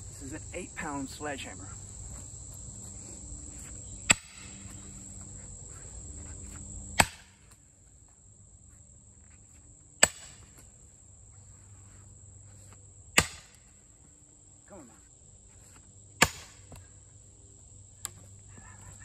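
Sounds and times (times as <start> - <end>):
sledgehammer striking steel wedge: 4.1 - 4.5, 7.0 - 7.3, 10.0 - 10.4, 13.2 - 13.6, 16.2 - 16.6.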